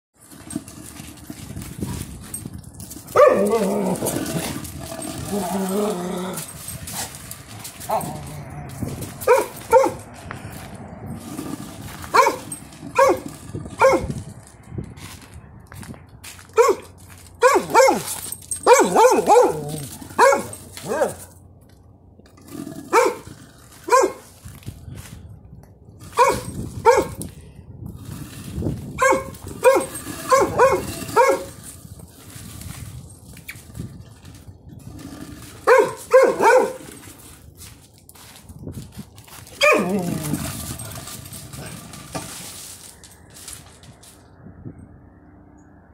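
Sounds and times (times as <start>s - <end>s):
dog barking: 3.2s - 3.5s, 9.2s - 10.0s, 12.1s - 14.1s, 16.6s - 21.3s, 22.9s - 23.3s, 23.9s - 24.3s, 26.1s - 27.2s, 29.0s - 31.5s, 35.7s - 36.8s, 39.6s - 40.0s.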